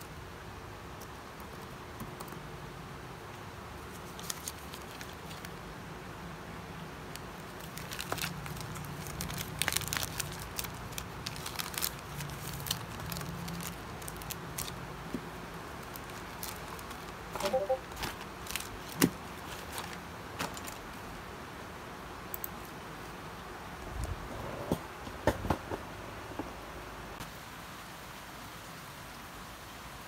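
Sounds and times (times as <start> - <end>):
crinkling with light clicks: 3.3 - 5.7, 7.1 - 17.2, 17.9 - 21.0, 22.3 - 23.2.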